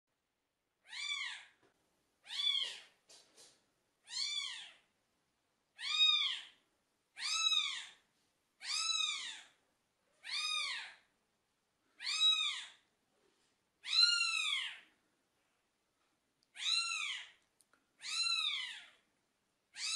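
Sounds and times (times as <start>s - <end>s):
kitten meowing: 0.8s - 1.5s, 2.2s - 2.8s, 4.1s - 4.8s, 5.8s - 6.6s, 7.2s - 8.0s, 8.6s - 9.6s, 10.2s - 11.0s, 12.0s - 12.8s, 13.8s - 14.8s, 16.5s - 17.4s, 18.0s - 19.0s.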